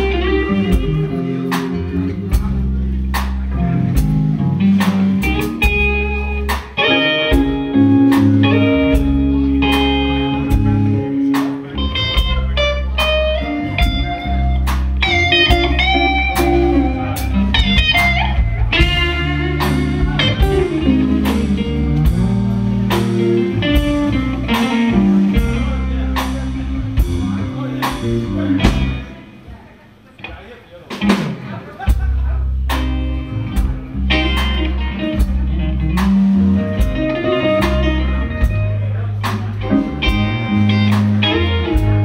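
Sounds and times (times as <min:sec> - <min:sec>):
bass guitar: 0:00.0 - 0:29.7, 0:30.9 - 0:42.0
electric guitar lead melody: 0:00.0 - 0:30.3, 0:30.9 - 0:42.0
rhythm guitar: 0:00.0 - 0:42.0
drums with cymbals: 0:13.0 - 0:29.2.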